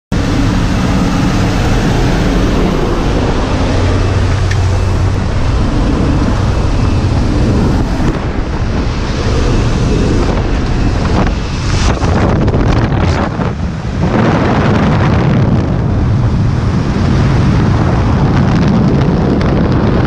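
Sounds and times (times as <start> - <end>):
plane engines droning: 0.1 - 20.0
wind buffeting microphone: 0.1 - 20.0.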